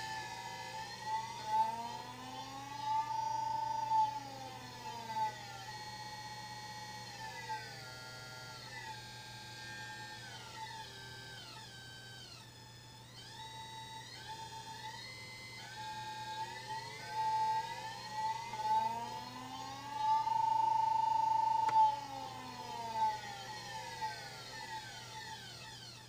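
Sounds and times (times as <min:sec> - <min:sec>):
inverter drive whining tones: 0:00.0 - 0:26.0.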